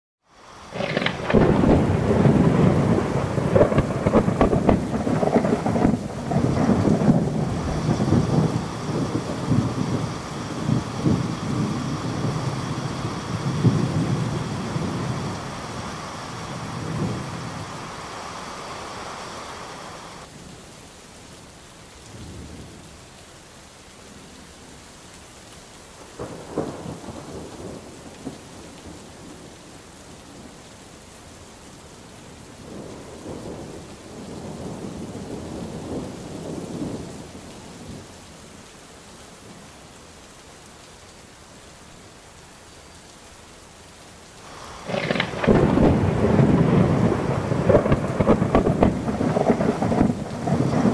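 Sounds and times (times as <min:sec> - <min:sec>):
steady rain: 0:00.2 - 0:50.9
rolling thunder: 0:00.6 - 0:20.2, 0:26.2 - 0:29.3, 0:44.5 - 0:50.9.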